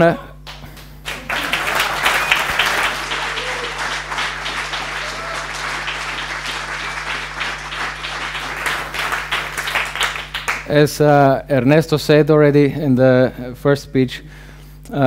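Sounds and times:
audience applauding: 0.5 - 10.7.

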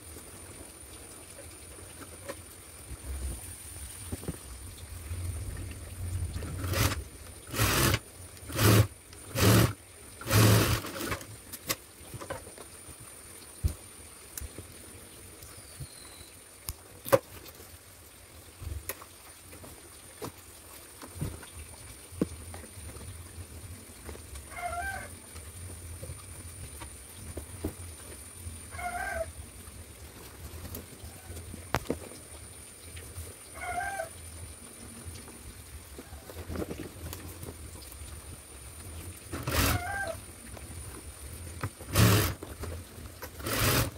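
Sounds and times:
sewing machine stitching: 6.4 - 11.3, 39.3 - 40.1, 41.8 - 42.4, 43.3 - 43.9
short animal calls: 39.5 - 40.2.

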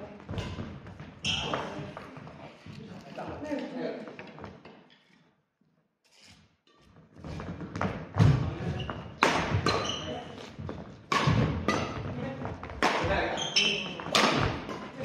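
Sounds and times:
racket hitting shuttlecock: 7.8 - 15.0.

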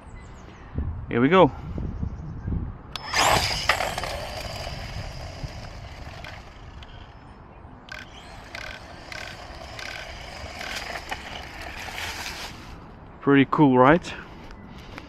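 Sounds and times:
tyres on asphalt: 2.9 - 15.0
electric motor whine: 3.0 - 7.2, 7.9 - 12.8.

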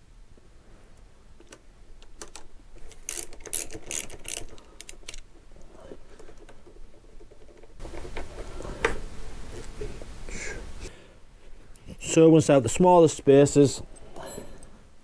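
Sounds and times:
ratchet wrench clicking: 3.0 - 5.2.

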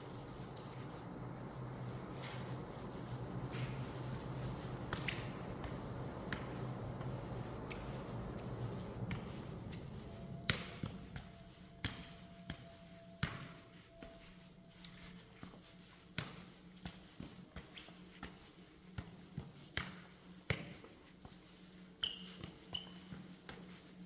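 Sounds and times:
steady low hum: 0.0 - 24.0
footsteps on hard stairs: 3.4 - 13.5.

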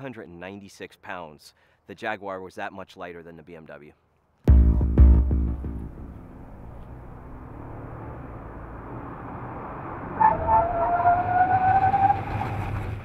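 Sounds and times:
rising whine: 4.5 - 12.4
car road and wind noise: 5.6 - 13.0.

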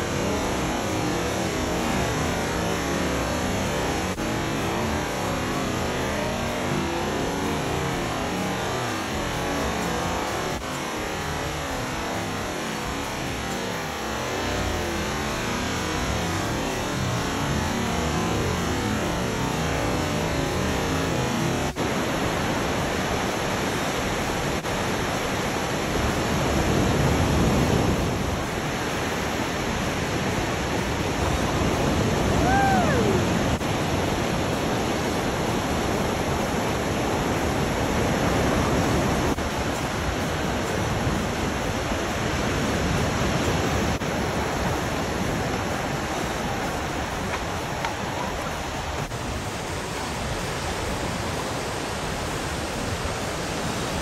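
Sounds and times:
ocean surf breaking: 21.4 - 54.0.

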